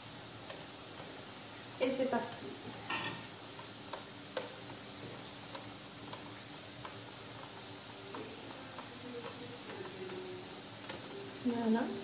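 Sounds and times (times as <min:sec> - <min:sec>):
electric grill hissing and ticking: 0:00.0 - 0:12.0.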